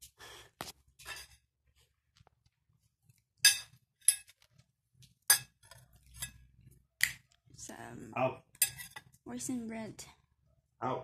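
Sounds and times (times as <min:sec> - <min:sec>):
knife clinking against plate: 0:08.6 - 0:09.0.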